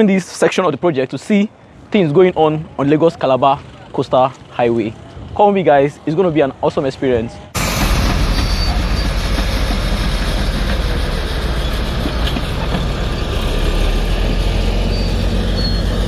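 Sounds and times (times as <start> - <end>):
bulldozer diesel engine rumbling: 7.4 - 16.0.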